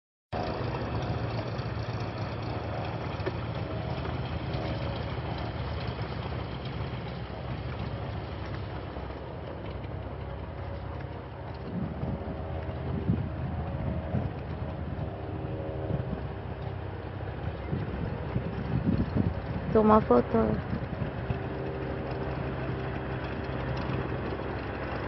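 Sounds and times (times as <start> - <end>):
engine drone: 0.3 - 25.0
wind noise on microphone: 10.8 - 24.4.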